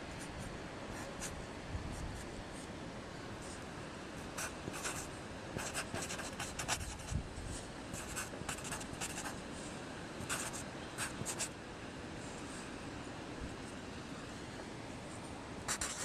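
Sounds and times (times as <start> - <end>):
marker writing on cardboard: 4.4 - 7.2, 8.0 - 9.4, 10.2 - 11.5, 15.7 - 16.0.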